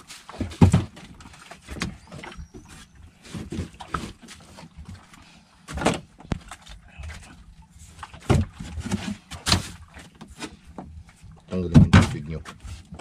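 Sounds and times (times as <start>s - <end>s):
fish knocking in styrofoam cooler: 0.4s - 1.1s, 8.2s - 9.8s.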